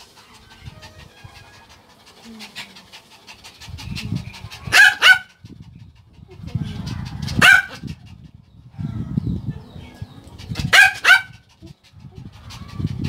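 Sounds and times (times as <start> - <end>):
small dog barking: 4.7 - 5.3, 7.4 - 7.8, 10.7 - 11.3.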